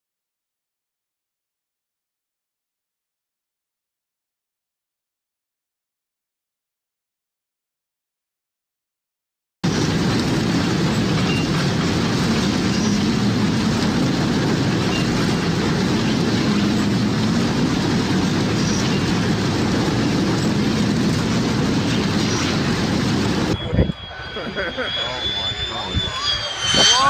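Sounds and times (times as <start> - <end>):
storm wind on microphone: 9.6 - 27.0.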